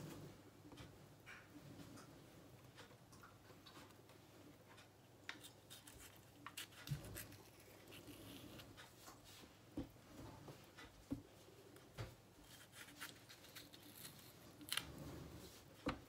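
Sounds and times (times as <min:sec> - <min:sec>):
knife slicing tomato: 0:05.4 - 0:08.7.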